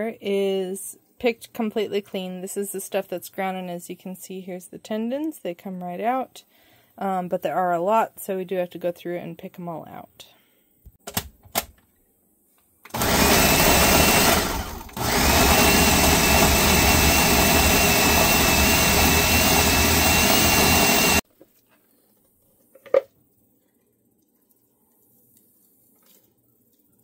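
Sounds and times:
blender motor whining: 0:12.9 - 0:21.2.

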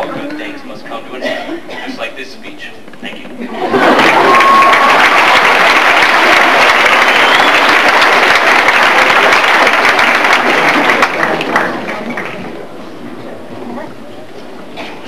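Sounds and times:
audience applause: 0:03.6 - 0:12.6.

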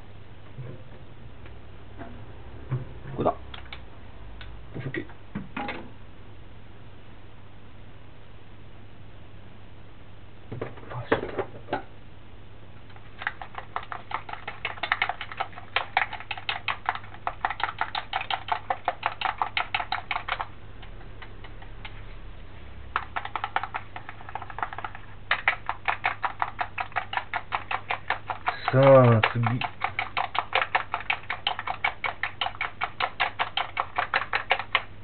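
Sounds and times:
chopsticks beating eggs in metal bowl: 0:13.2 - 0:21.8, 0:23.0 - 0:35.0.

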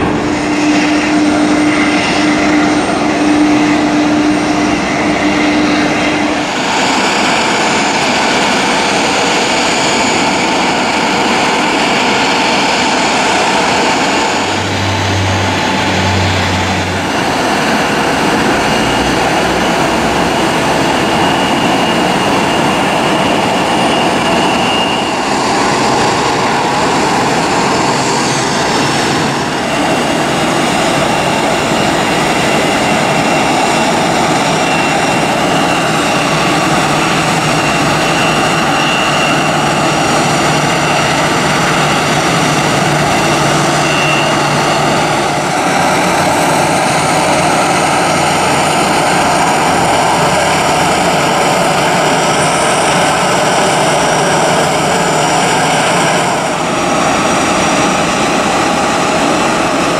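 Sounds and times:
jet engines idling: 0:00.0 - 0:59.9
thin high tone: 0:33.1 - 0:46.5.

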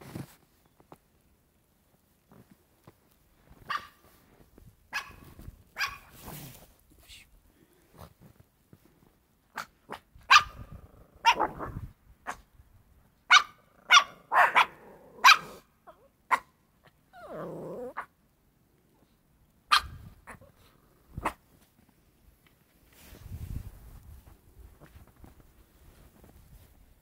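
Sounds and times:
dog barking: 0:03.7 - 0:04.0, 0:04.9 - 0:06.1, 0:09.6 - 0:11.6, 0:13.3 - 0:15.6, 0:16.3 - 0:16.5, 0:19.7 - 0:20.4
dog growling: 0:17.2 - 0:18.0.

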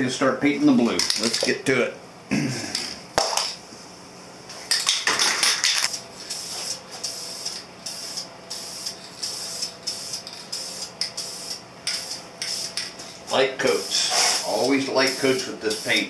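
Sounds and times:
spray can hissing: 0:06.2 - 0:13.0, 0:13.6 - 0:16.0.

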